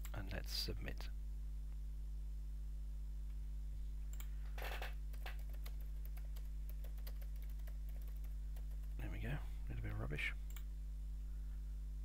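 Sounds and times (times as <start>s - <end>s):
steady low hum: 0.0s - 12.0s
keyboard typing: 5.1s - 9.0s.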